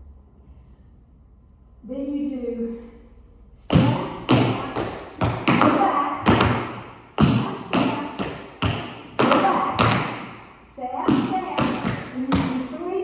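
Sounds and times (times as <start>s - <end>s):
tap shoes on wooden floor: 3.7s - 10.4s, 11.0s - 12.9s.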